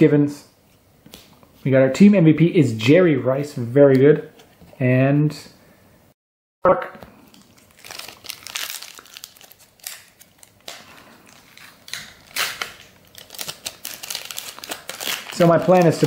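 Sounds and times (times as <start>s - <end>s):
foil wrapper crinkling: 7.3s - 16.0s.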